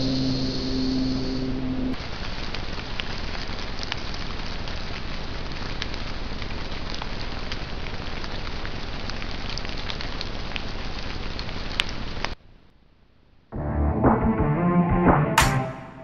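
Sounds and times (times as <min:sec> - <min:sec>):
steady hiss: 0:00.0 - 0:12.4
music: 0:13.6 - 0:16.0.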